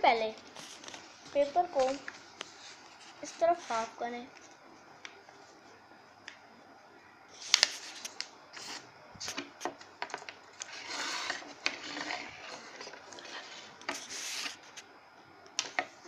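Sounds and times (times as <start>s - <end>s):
paper rustling and crackling: 0.5s - 3.9s, 7.4s - 14.9s.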